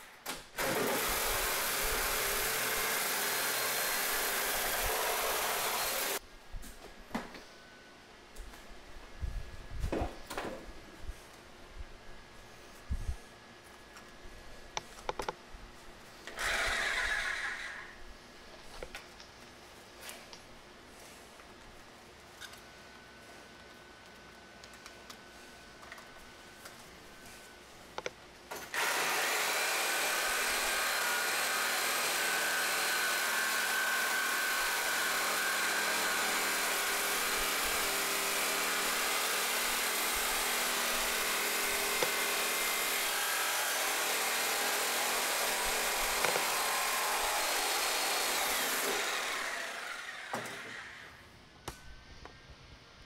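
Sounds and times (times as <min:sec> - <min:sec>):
reciprocating saw cutting metal: 0:00.6 - 0:06.2, 0:16.3 - 0:18.0, 0:28.7 - 0:51.2.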